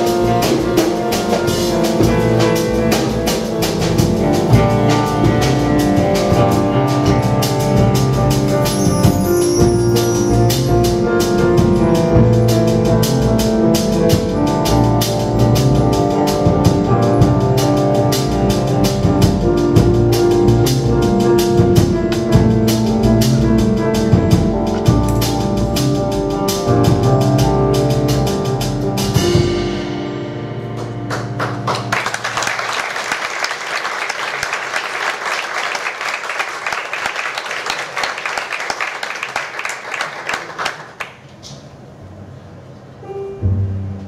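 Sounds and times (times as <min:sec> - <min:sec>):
jazz group playing: 0:00.0 - 0:40.8
audience applause: 0:31.1 - 0:41.3.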